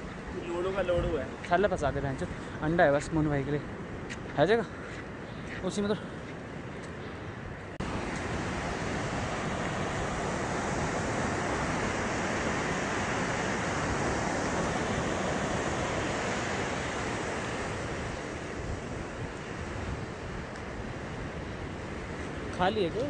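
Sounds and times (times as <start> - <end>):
stream rushing over boulders: 7.8 - 23.0.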